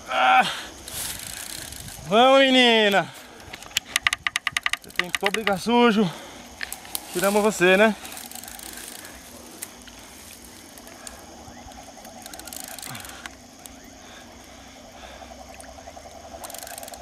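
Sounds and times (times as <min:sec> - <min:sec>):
high insect trill: 0:00.0 - 0:17.0
faint clicks: 0:03.4 - 0:05.6, 0:08.0 - 0:13.8, 0:15.5 - 0:17.0.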